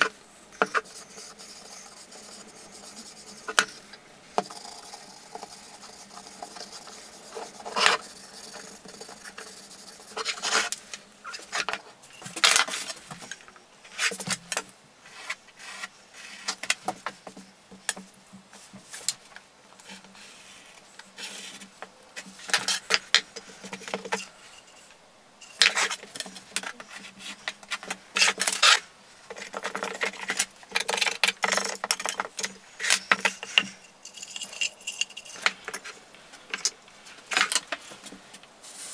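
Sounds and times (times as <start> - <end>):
rag wiping wood: 0.6 - 10.8.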